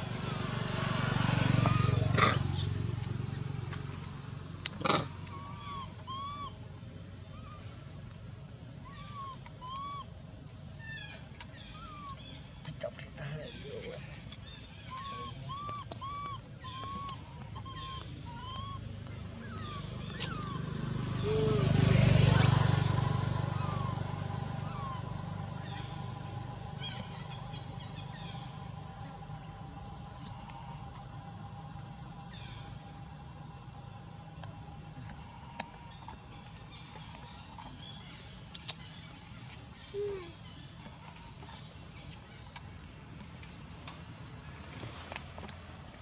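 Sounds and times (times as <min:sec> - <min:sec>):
vehicle engine passing by: 0:00.0 - 0:10.0, 0:11.7 - 0:46.0
baby monkey coo calls: 0:01.6 - 0:03.0, 0:04.9 - 0:06.6, 0:08.8 - 0:10.1, 0:10.8 - 0:12.8, 0:14.7 - 0:30.9, 0:39.8 - 0:40.5.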